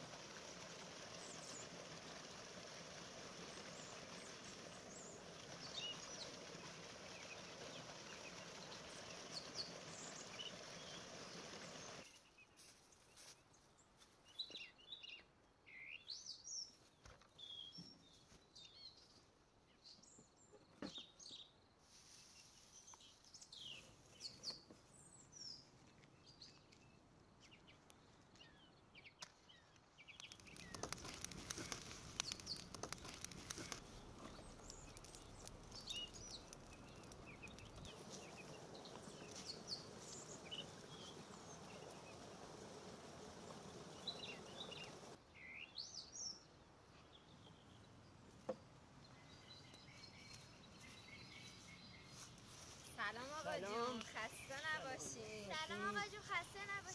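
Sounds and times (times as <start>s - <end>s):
fire hissing: 0.0s - 12.0s, 30.2s - 45.2s
fire crackling and rustling: 0.0s - 12.1s, 30.1s - 45.2s
small birds chirping: 0.0s - 56.9s.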